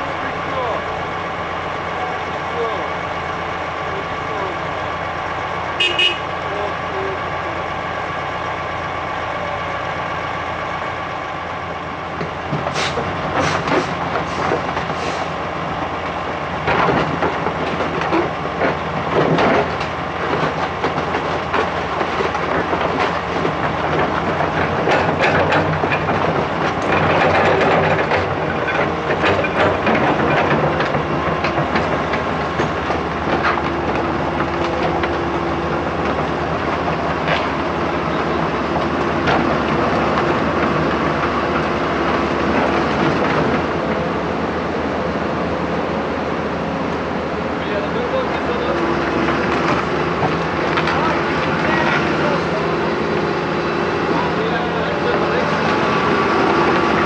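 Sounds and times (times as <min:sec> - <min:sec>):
excavator diesel engine running: 0:00.0 - 0:57.0
steel tracks clanking: 0:00.0 - 0:57.0.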